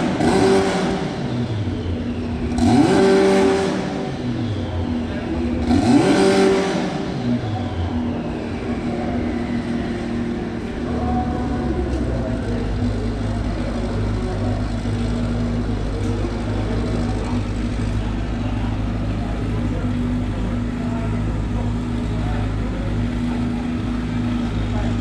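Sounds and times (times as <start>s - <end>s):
low hum of engines: 0.0s - 25.0s.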